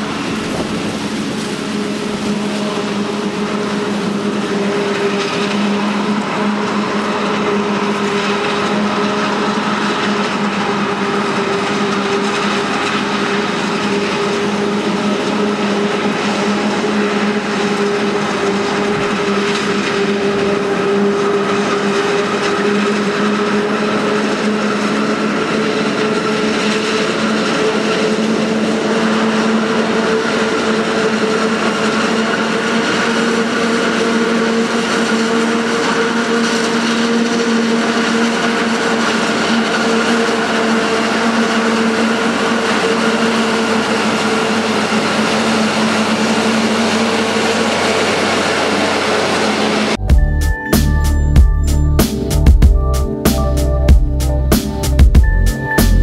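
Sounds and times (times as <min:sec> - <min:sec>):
constant machine whine: 0:00.0 - 0:56.0
harvester machine drone: 0:00.0 - 0:56.0.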